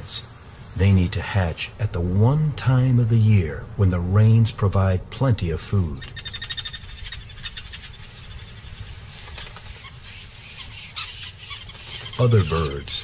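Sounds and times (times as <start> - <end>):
animal trilling call: 9.7 - 13.0.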